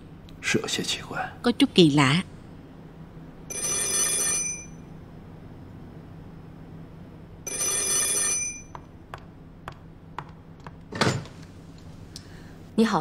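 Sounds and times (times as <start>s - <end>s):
telephone bell ringing: 3.5s - 4.9s, 7.4s - 8.7s.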